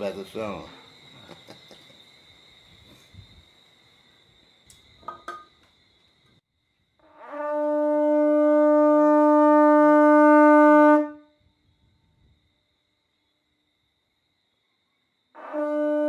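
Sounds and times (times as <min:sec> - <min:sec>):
conch shell trumpet blast: 0:07.0 - 0:11.4, 0:15.3 - 0:16.0.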